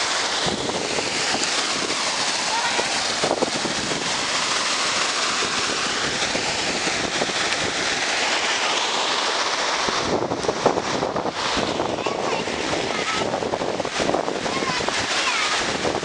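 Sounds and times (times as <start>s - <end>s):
river flowing over rocks: 0.0s - 16.0s.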